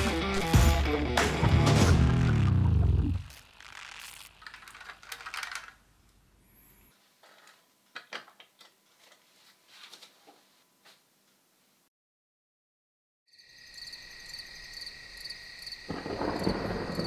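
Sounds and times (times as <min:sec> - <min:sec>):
toy car clicking on surface: 0:04.4 - 0:05.8
soft rustling of toy handling: 0:04.4 - 0:06.2, 0:08.3 - 0:11.0.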